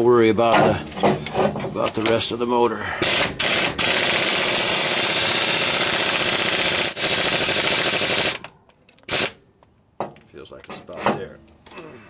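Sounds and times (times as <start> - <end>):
power wrench running: 3.0 - 8.5, 9.1 - 9.4.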